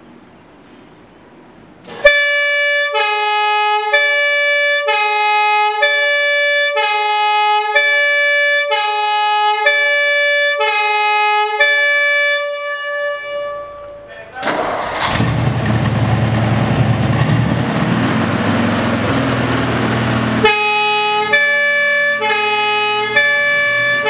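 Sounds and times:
fire engine two-tone siren: 0:01.9 - 0:14.1, 0:18.0 - 0:24.0.

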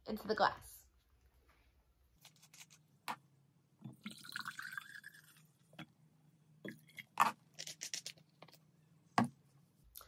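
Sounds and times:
liquid pouring into glass: 0:03.9 - 0:05.6.

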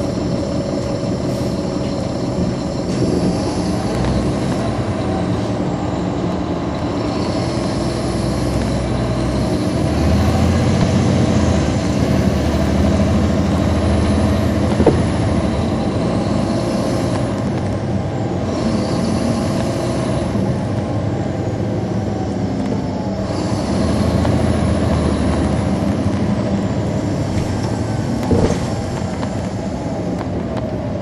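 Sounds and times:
bus diesel engine hum: 0:00.0 - 0:31.0
knock: 0:14.8 - 0:15.1.

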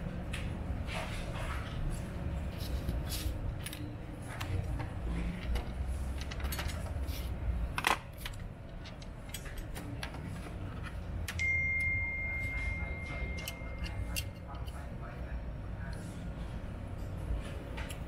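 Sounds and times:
clicks and taps of handled parts: 0:07.8 - 0:11.4
steady high tone: 0:11.3 - 0:14.4.

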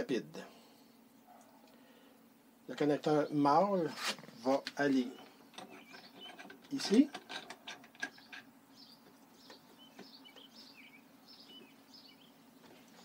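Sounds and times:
faint bird chirps: 0:08.1 - 0:12.4.

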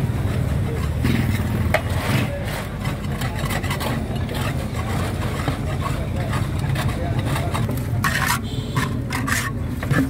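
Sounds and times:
scraping inside metal pot: 0:00.8 - 0:10.0.

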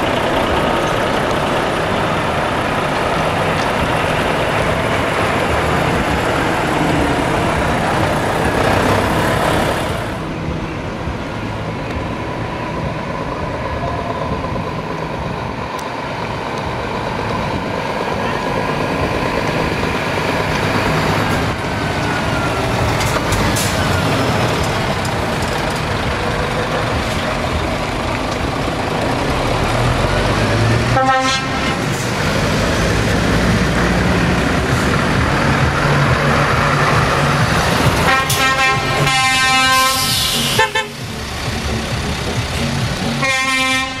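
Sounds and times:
diesel truck engines driving past: 0:00.0 - 0:44.0
truck horn blasts: 0:30.9 - 0:32.0, 0:38.0 - 0:41.2, 0:42.6 - 0:44.0.

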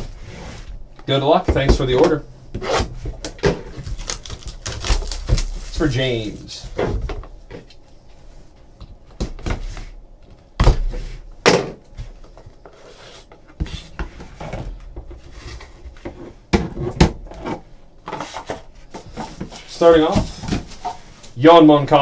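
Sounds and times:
cardboard rustling and scraping: 0:01.6 - 0:07.7, 0:12.0 - 0:21.3.

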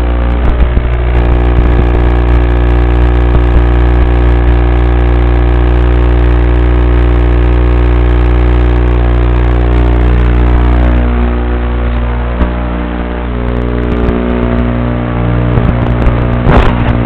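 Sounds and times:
loud electrical buzz: 0:00.0 - 0:17.0.

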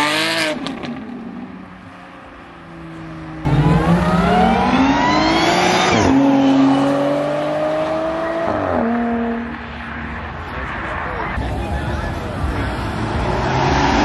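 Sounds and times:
car engine accelerating: 0:03.0 - 0:09.6.

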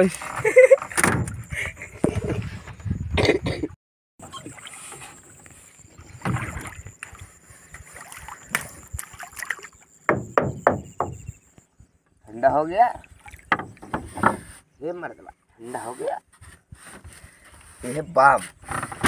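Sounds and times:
water lapping against wooden boat: 0:04.2 - 0:11.3, 0:12.3 - 0:17.9
fish thrashing and splashing: 0:06.1 - 0:09.8.

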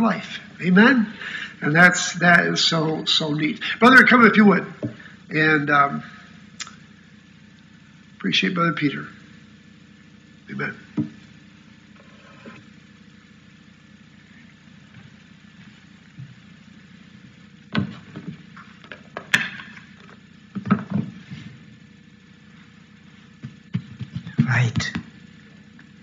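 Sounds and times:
microphone handling knocks and rustles: 0:17.7 - 0:19.6, 0:20.6 - 0:21.6, 0:23.4 - 0:25.1.

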